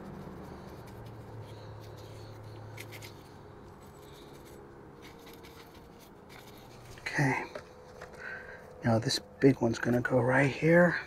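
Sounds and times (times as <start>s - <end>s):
brush dabbing resin: 0.0s - 8.2s
low steady hum: 0.0s - 11.0s.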